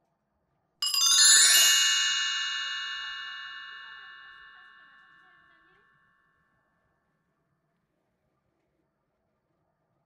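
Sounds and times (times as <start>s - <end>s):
bell-like chime cascade: 0.8s - 5.2s.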